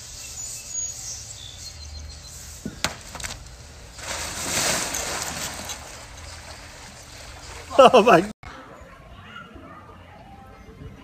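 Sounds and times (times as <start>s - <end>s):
person falling into water: 4.0s - 6.6s.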